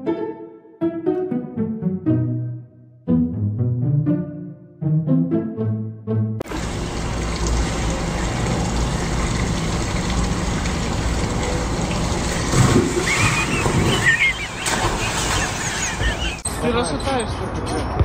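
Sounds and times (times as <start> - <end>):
splash and thrashing in pool: 6.4 - 16.4
water feature rushing: 6.4 - 16.4.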